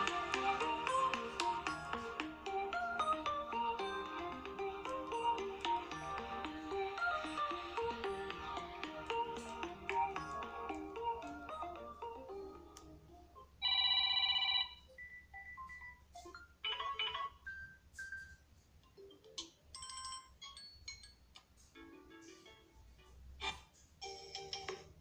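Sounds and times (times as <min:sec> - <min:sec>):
phone ringtone previews: 0:13.6 - 0:16.0.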